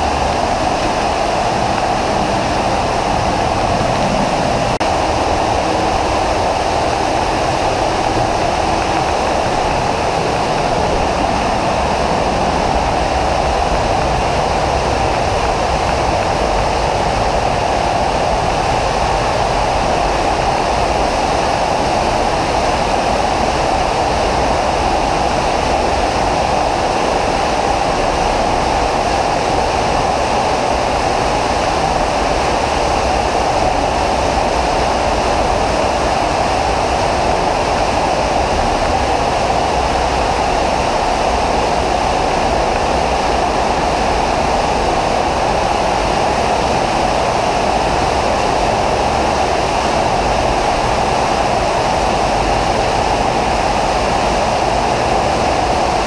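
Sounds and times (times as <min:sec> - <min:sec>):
waterfall rushing into pool: 0:00.0 - 0:56.0.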